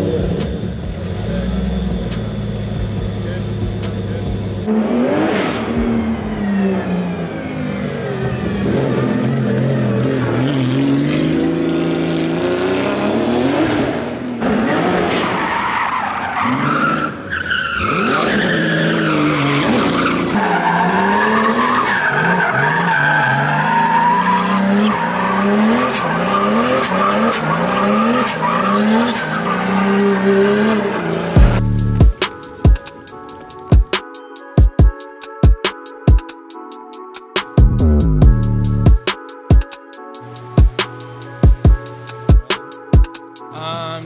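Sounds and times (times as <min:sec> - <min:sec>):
car engine revving: 0:00.0 - 0:33.7, 0:37.5 - 0:39.0
tyres squealing: 0:15.4 - 0:31.6.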